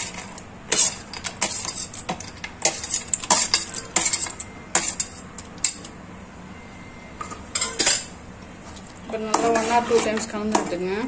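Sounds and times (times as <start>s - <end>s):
spoon scraping a steel plate: 0.0s - 5.9s, 9.2s - 10.7s.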